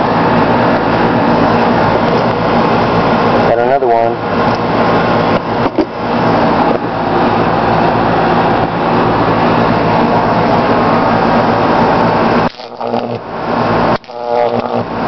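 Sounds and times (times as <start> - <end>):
electrical hum: 0.0 - 15.0
electric arc buzzing crackle: 9.9 - 15.0.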